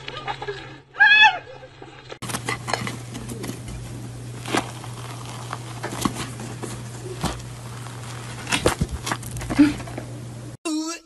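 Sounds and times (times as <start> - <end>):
steady low hum: 1.6 - 10.6
cake crust crackling: 2.2 - 10.4.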